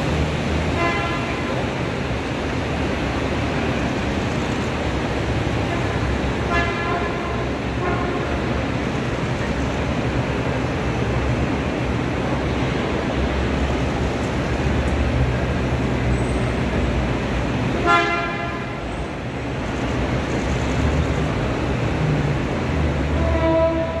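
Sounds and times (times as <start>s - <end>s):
car engines rumbling: 0.0s - 24.0s
car horn: 0.8s - 1.6s, 6.5s - 8.4s, 17.8s - 18.8s, 23.2s - 24.0s.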